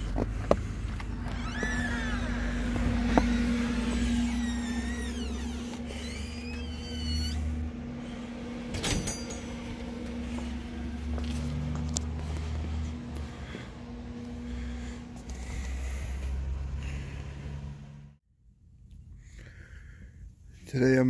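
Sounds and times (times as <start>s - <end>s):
steady low hum: 0.0s - 21.0s
door hinges squeaking: 1.2s - 7.7s.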